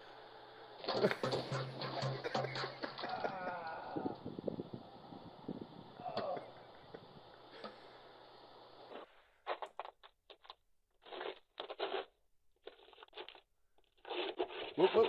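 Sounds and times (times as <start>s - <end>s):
steady hiss with low hum: 0.0s - 9.9s.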